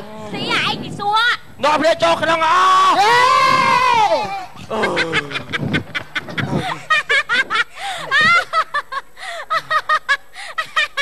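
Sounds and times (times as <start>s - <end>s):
person laughing: 4.2s - 11.0s.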